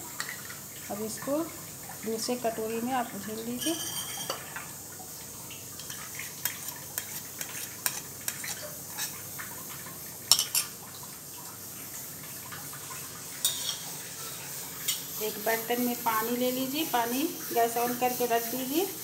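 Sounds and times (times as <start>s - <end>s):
spoon clinking against bowls: 3.6s - 4.6s, 10.3s - 10.7s.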